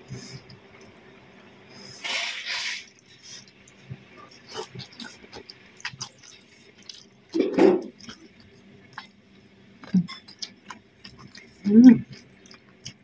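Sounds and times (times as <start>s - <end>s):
person chewing crunchy food: 2.6s - 13.0s.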